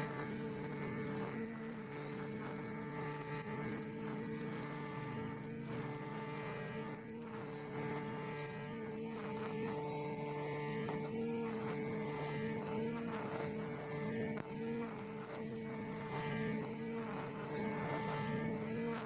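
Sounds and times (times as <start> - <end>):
brush cutter cutting grass: 0.0 - 19.0.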